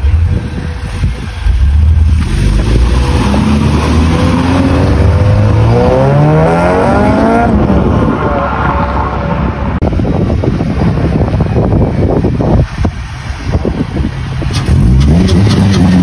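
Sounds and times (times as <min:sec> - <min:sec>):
car engine accelerating hard: 0:01.8 - 0:09.8.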